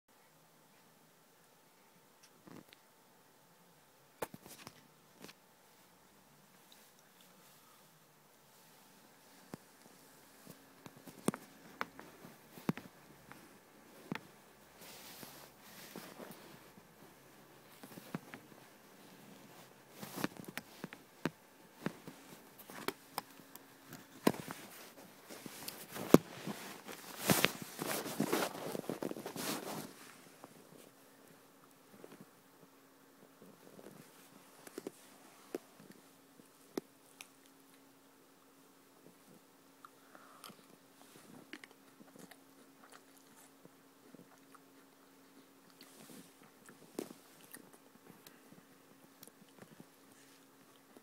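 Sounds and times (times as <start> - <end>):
steady low hum: 0.1 - 51.0
chewing cereal in milk: 39.3 - 51.0.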